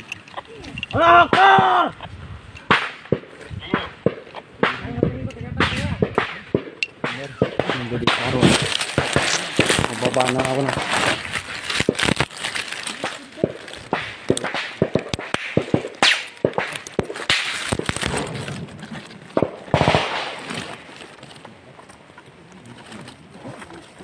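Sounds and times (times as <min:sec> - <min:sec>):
small-arms gunfire: 0:05.6 - 0:11.1, 0:13.0 - 0:18.5, 0:19.4 - 0:20.8.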